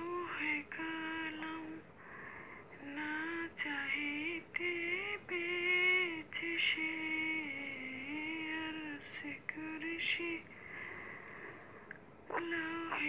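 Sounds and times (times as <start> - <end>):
woman singing: 0.0 - 1.9, 2.7 - 10.5, 12.3 - 13.0.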